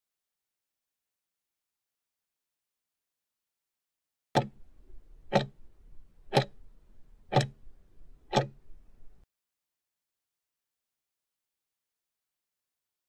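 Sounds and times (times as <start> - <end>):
sharp clock ticks: 4.4 - 4.6, 5.3 - 5.6, 6.3 - 6.6, 7.3 - 7.6, 8.3 - 8.6.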